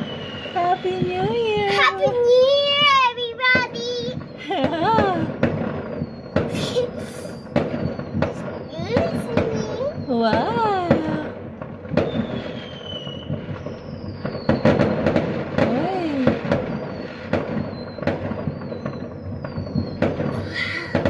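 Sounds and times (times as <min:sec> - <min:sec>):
firework whistles gliding down: 0:00.0 - 0:21.0
fireworks bangs and crackling: 0:00.0 - 0:21.0.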